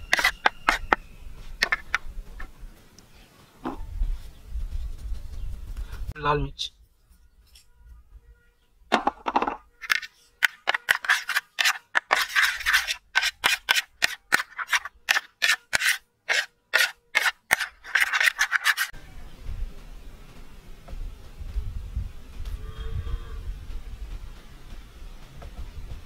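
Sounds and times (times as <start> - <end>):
metal spoon scraping ceramic plate: 0.0 - 1.0, 9.8 - 18.9.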